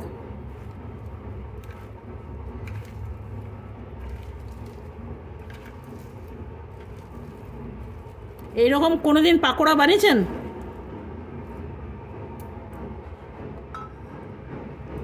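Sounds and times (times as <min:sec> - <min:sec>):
hand squishing vegetables: 0:00.0 - 0:09.5.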